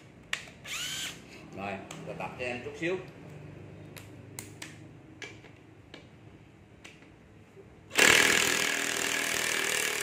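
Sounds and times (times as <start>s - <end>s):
drill drilling into steel: 0.7s - 1.2s, 7.9s - 10.0s.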